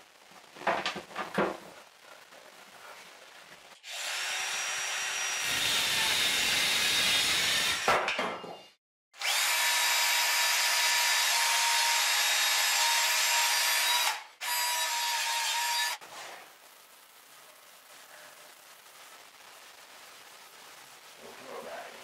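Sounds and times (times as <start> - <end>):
cordless drill boring wood: 3.8 - 7.9, 9.2 - 16.0
jigsaw cutting wood: 3.8 - 8.0, 9.2 - 16.0.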